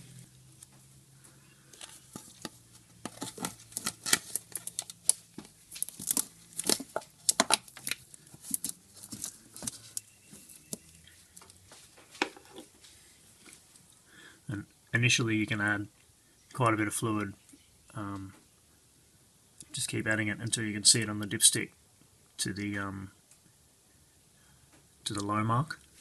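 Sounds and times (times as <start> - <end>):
plastic crackling and rubbing: 1.6 - 13.7.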